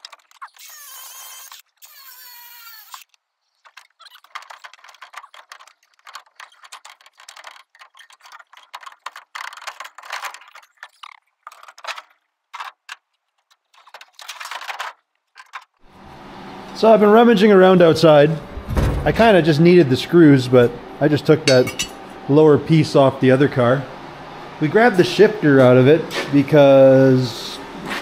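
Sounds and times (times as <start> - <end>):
grinder cutting metal: 0.4 - 3.0
loose metal parts clinking: 21.4 - 22.0.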